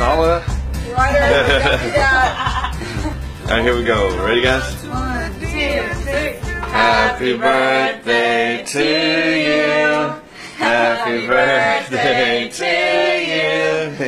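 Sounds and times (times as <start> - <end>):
young man singing unaccompanied: 4.3 - 9.7.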